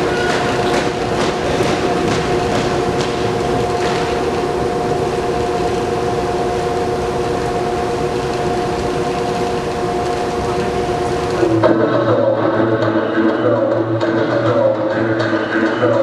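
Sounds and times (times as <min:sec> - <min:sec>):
steady rushing noise: 0:00.0 - 0:16.0
held music chord: 0:10.4 - 0:16.0.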